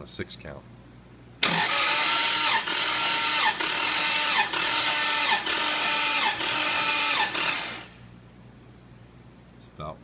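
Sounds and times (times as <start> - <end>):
starter motor cranking engine: 1.4 - 8.0.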